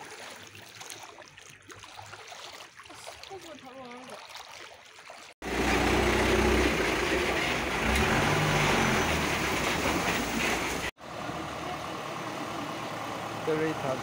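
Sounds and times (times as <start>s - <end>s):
water splashing and rushing: 0.0s - 14.0s
small scooter engine running: 5.4s - 8.0s.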